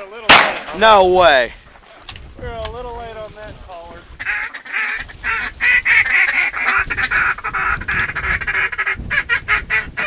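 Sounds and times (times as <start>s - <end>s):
duck calls quacking: 4.1s - 10.0s.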